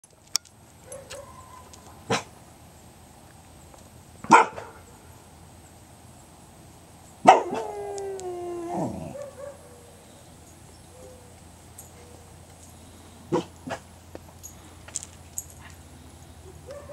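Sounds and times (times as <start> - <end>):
dog barking: 0.8 - 2.3, 4.3 - 4.8, 7.2 - 7.7, 8.8 - 9.9, 13.3 - 13.9, 16.6 - 16.9
dog howling: 7.3 - 9.8, 16.6 - 16.9.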